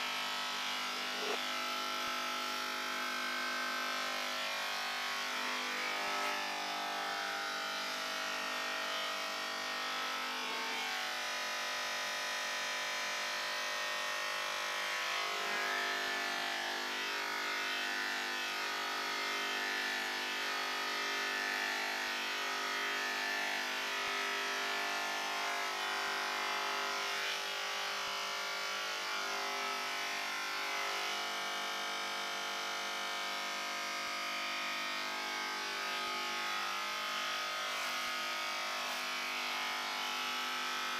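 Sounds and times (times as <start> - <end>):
electric hair clippers buzzing: 0.0 - 2.3, 3.2 - 7.9, 14.1 - 26.2, 28.9 - 31.8, 33.2 - 40.9.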